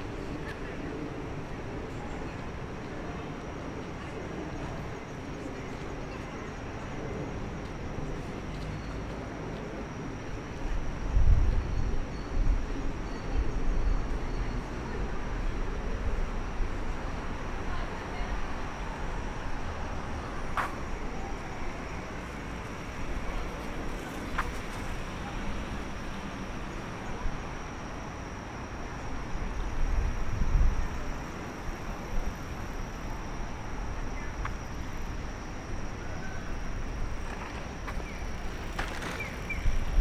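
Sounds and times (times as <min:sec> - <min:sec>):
road traffic hum: 0:12.7 - 0:40.0.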